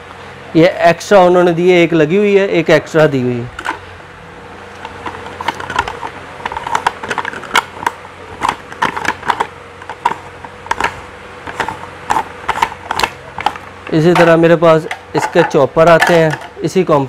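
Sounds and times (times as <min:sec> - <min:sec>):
plastic parts clicking: 0:04.8 - 0:16.6.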